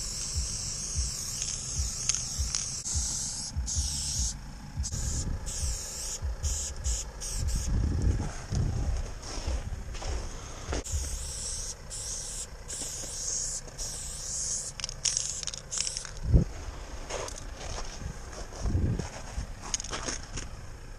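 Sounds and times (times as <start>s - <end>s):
spray paint can hissing: 0.0s - 7.8s, 10.8s - 16.3s
low rumbling: 0.0s - 20.9s.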